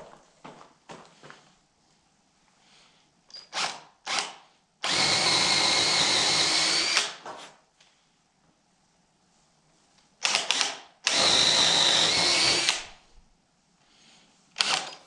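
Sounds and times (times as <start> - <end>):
cordless drill boring into wood: 3.4 - 7.2, 10.2 - 13.0, 14.6 - 15.0.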